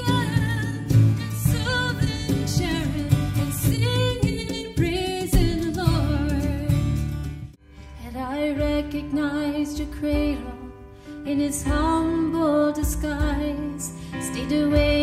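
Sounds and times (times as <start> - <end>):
acoustic guitar: 0.0 - 15.0
woman singing worship song: 8.0 - 15.0.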